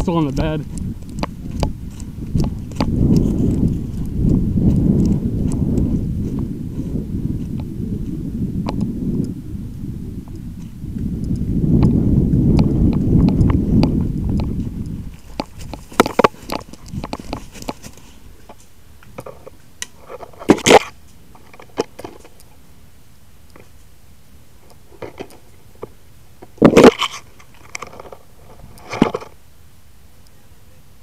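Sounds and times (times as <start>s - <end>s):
footsteps crunching through dry brush: 0.0s - 7.6s, 12.4s - 18.7s.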